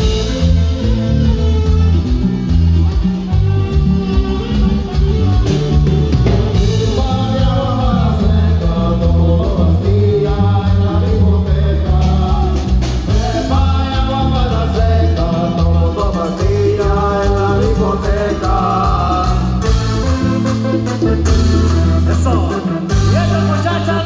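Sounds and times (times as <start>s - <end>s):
band playing: 0.0s - 24.0s
heavy bass line: 0.0s - 24.0s
lead singer singing: 6.2s - 19.9s.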